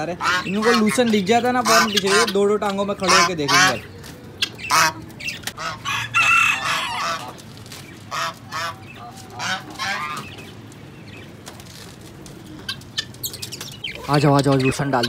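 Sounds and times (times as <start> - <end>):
geese honking: 0.0 - 11.4
chickens clucking: 0.0 - 15.0.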